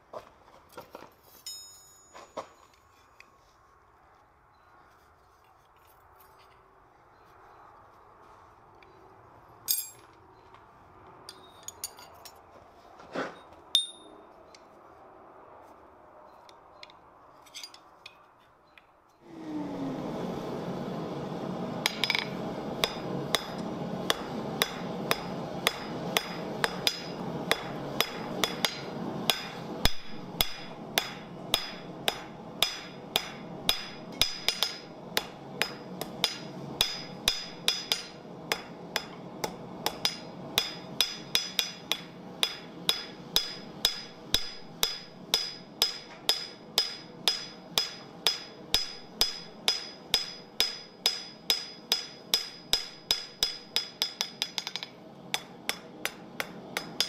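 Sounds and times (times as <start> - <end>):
hammer striking metal on anvil: 1.5 - 2.4, 13.8 - 14.2, 21.8 - 57.0.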